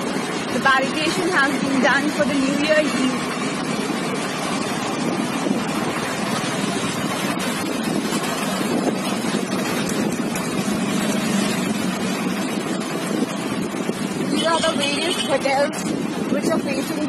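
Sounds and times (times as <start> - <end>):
road noise: 0.0 - 17.0
vehicle engine: 0.0 - 17.0
wind rushing on microphone: 4.8 - 17.0.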